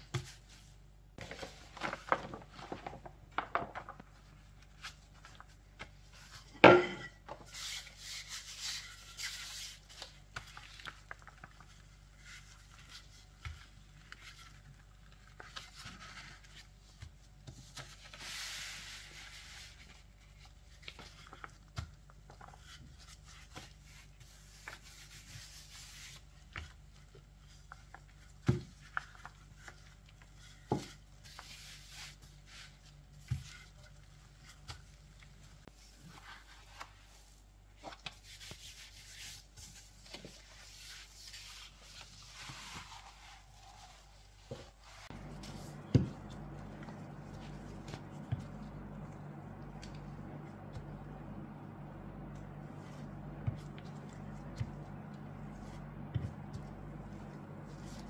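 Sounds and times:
rolling pin rubbing over sheet: 38.2 - 49.1.

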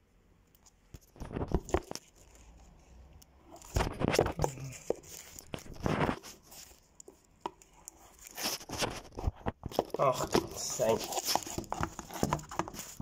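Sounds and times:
fingers scraping phone microphone: 1.1 - 13.0.

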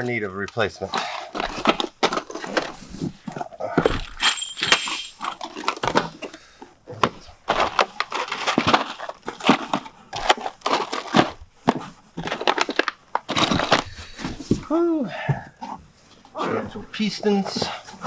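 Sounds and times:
parts knocking and clicking: 7.0 - 13.9.

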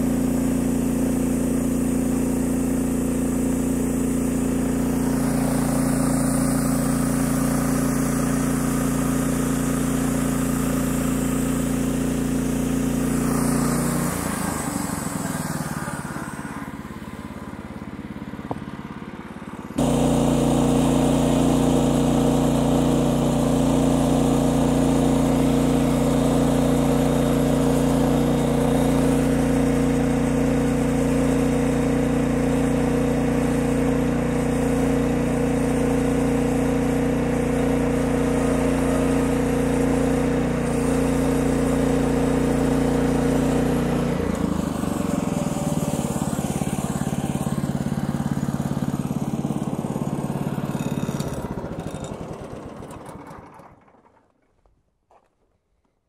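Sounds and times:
sawmill engine running: 0.0 - 54.7
band blade sawing wood: 4.5 - 17.0, 49.3 - 52.2.

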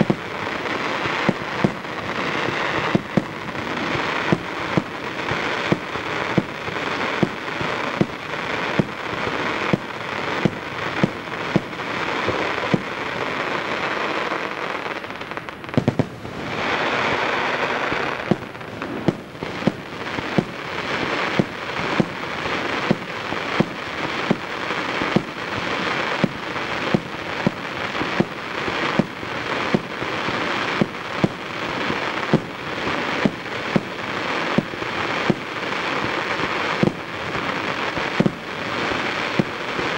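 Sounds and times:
firework crackling: 0.0 - 39.9
firework shells bursting: 15.6 - 24.4.

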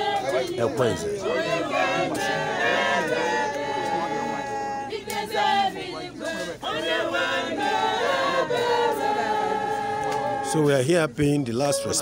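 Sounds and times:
church choir singing: 0.0 - 10.9.

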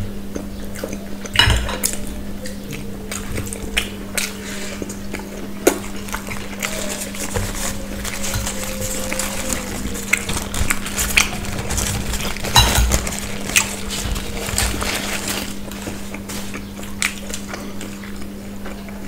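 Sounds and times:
steady low hum: 0.0 - 19.0
paper wrapper rustling: 5.7 - 17.4
cutlery clinking on plates: 12.4 - 13.0.

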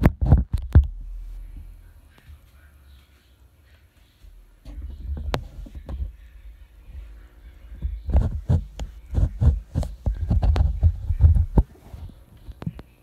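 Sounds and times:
knocks and bumps on microphone: 0.0 - 1.0, 7.8 - 12.7.

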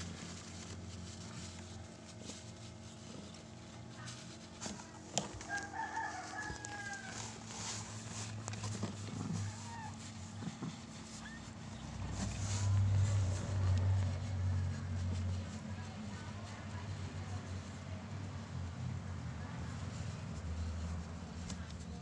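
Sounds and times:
handling rustling and taps: 0.0 - 14.4
rooster crowing: 5.4 - 7.4.

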